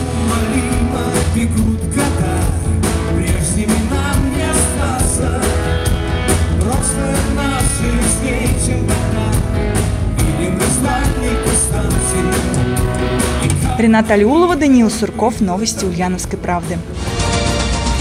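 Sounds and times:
person singing: 0.0 - 16.0
bass: 0.0 - 18.0
electric guitar: 0.0 - 18.0
keyboards: 0.0 - 18.0.

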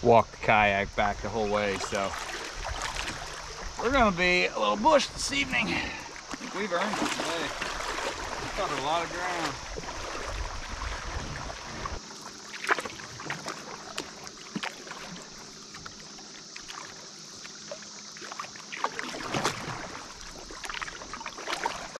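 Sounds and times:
steady hiss: 0.0 - 12.2
water splashing and dripping: 1.2 - 22.0.

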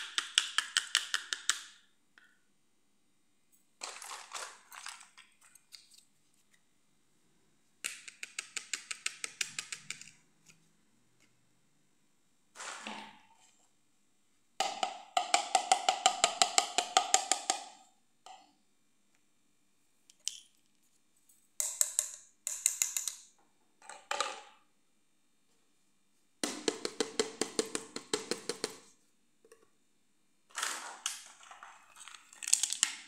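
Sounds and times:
plastic toys clicking: 7.8 - 10.2.

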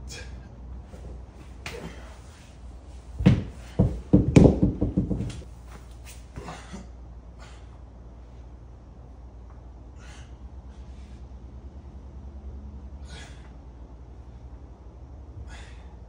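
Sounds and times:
dumbbells thudding on concrete: 3.2 - 5.4.

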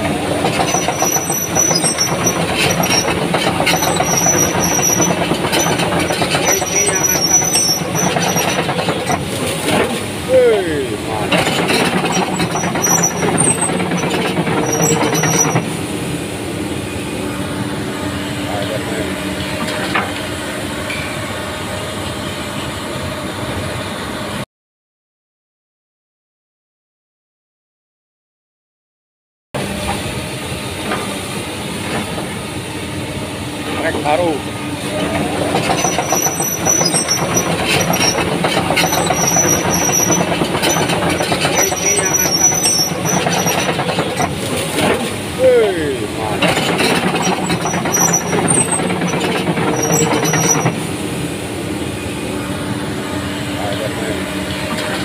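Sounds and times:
high squeal: 0.0 - 15.8, 33.7 - 44.3, 45.4 - 51.0
excavator diesel engine idling: 0.0 - 23.0, 29.6 - 55.0
steel crawler tracks clanking: 0.0 - 23.8, 29.6 - 55.0.

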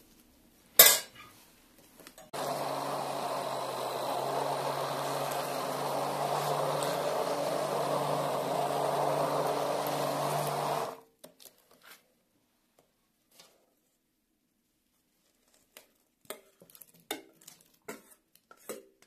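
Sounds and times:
immersion blender running: 2.3 - 11.0.

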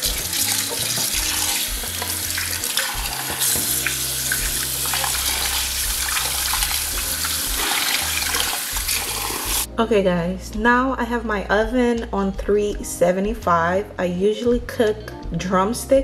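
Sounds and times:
water splashing as hands rinse: 0.0 - 9.7.

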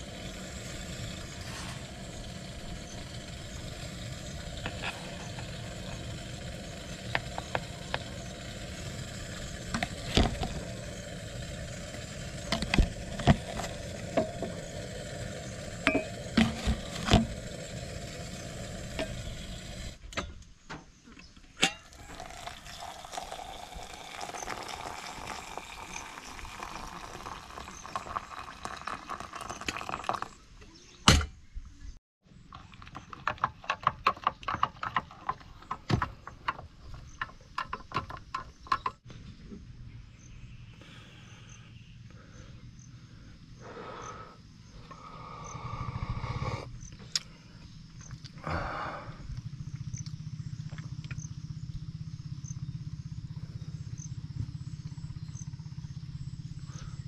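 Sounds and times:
drink stirred in mug: 21.9 - 30.3.

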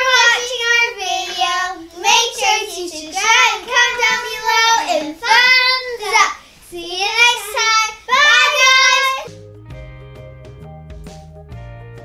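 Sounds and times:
girls singing: 0.0 - 9.4.

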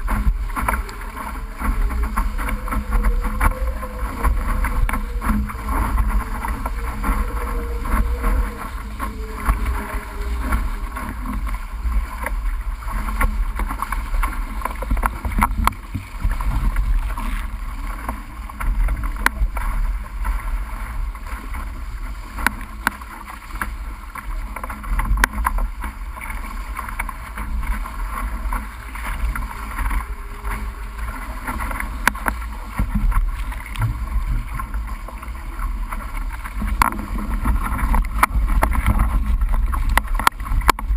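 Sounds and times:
water rushing and splashing: 0.0 - 40.9
wind rumbling on microphone: 0.0 - 40.9.

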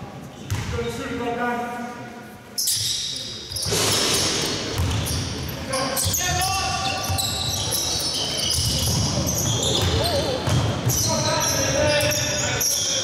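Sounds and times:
basketball bouncing: 3.5 - 5.4, 8.4 - 11.2.

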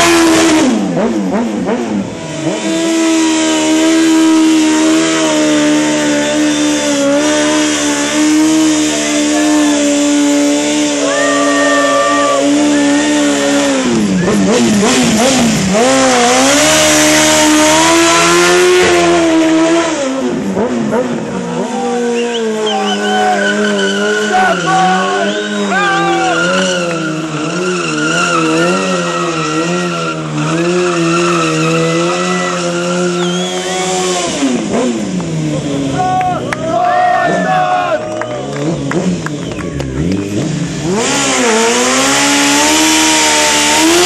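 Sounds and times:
motorcycle engine revving high: 0.0 - 44.0.

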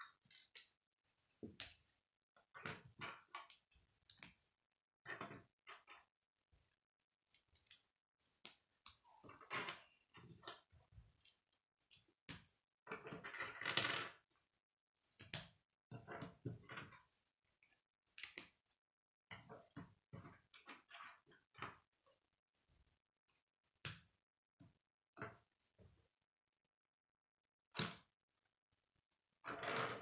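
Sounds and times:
plastic pieces clicking: 16.9 - 18.6.

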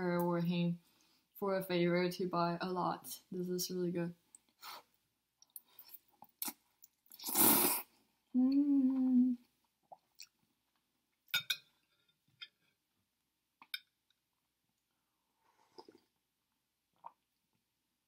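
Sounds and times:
person slurping noodles: 6.4 - 8.0
person humming mmm: 8.3 - 9.5
chewing and mouth clicks: 9.8 - 10.8.

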